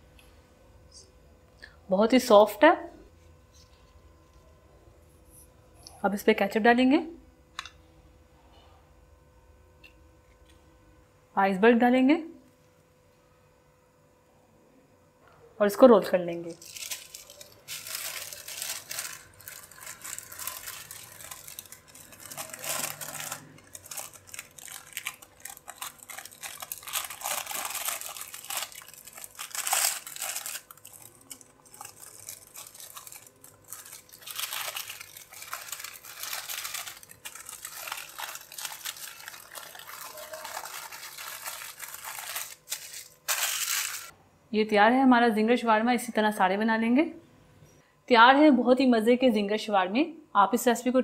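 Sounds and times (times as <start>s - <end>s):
paper crinkling and rustling: 16.5s - 44.1s.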